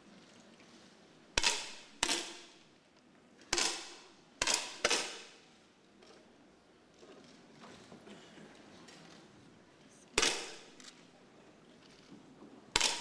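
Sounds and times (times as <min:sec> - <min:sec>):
air rifle shots echoing: 0:03.5 - 0:05.5, 0:10.2 - 0:10.8.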